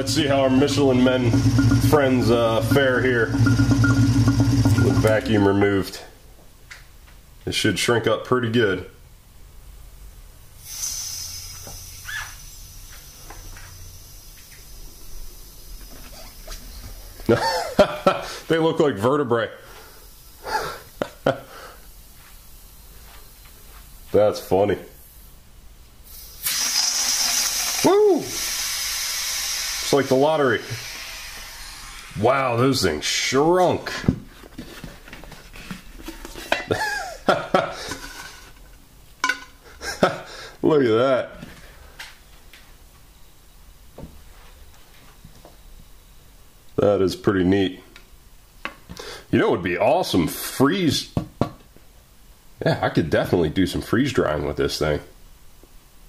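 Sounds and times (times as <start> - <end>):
air hissing into vacuum chamber: 10.6 - 17.2, 19.6 - 22.7, 26.0 - 33.3
faint short squeaks: 12.0 - 12.5.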